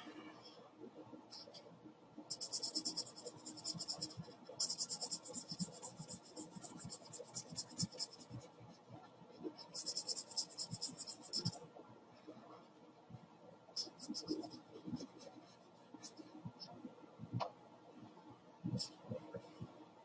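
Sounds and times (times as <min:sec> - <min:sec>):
marker scribbling on paper: 0:02.3 - 0:08.5, 0:09.6 - 0:11.6, 0:13.8 - 0:16.2.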